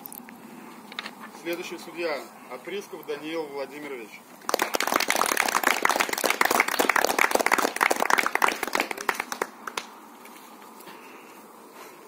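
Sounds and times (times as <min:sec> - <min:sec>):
people clapping: 0:04.4 - 0:10.0.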